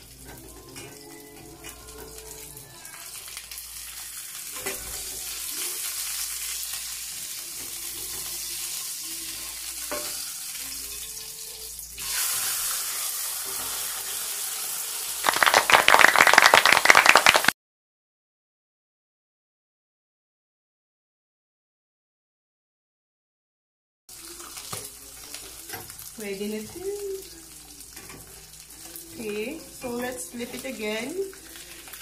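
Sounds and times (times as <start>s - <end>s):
oil spatter crackling: 0.0s - 7.7s, 15.2s - 17.5s, 24.1s - 32.0s
fish sizzling in oil: 0.0s - 17.2s, 24.1s - 32.0s.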